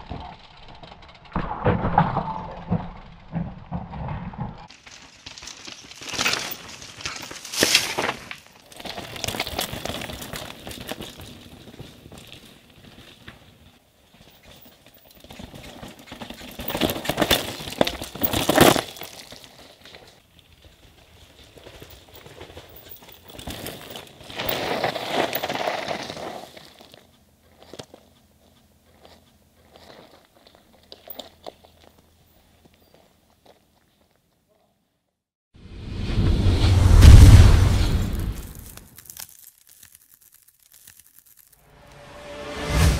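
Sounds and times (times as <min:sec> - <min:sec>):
bikes clattering: 0:00.0 - 0:34.0
bike tyres crunching on gravel: 0:04.1 - 0:34.4, 0:37.9 - 0:42.1.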